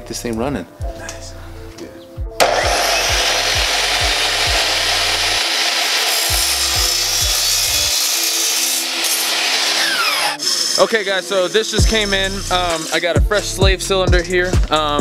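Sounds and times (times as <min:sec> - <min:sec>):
miter saw cutting: 0:02.4 - 0:13.2.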